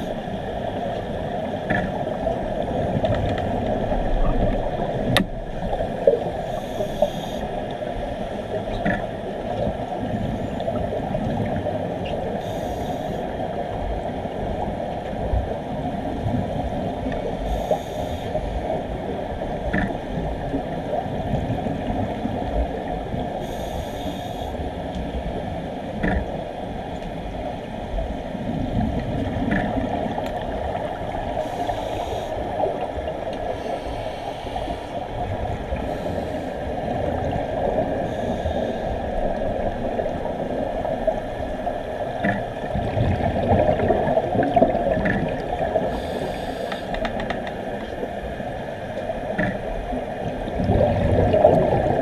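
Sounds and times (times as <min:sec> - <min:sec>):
underwater bubbles gurgling: 0:00.0 - 0:52.0
faint clicks: 0:46.1 - 0:47.6.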